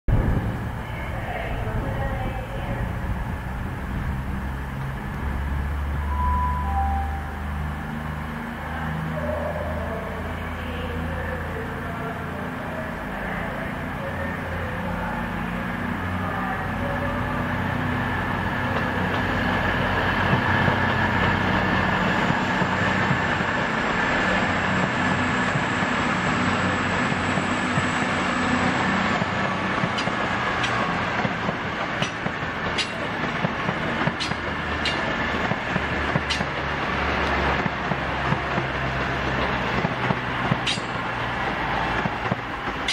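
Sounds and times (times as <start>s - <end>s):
diesel train engines humming: 0.1s - 42.9s
train wheels clicking over track: 29.2s - 42.9s.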